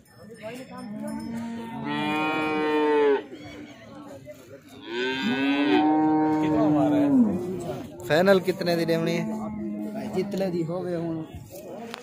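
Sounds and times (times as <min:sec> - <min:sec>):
cow mooing: 0:01.3 - 0:03.3, 0:04.8 - 0:07.7.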